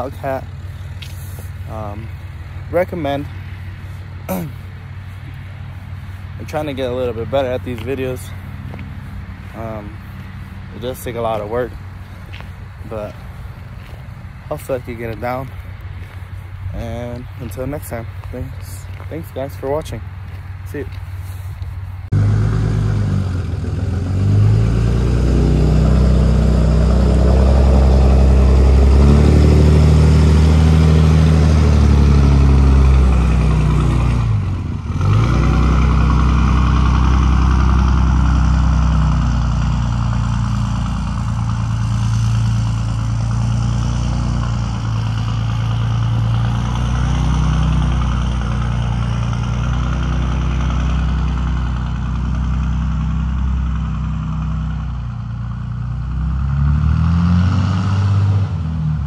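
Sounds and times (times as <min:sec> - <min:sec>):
truck engine running under load: 0:21.5 - 0:59.0.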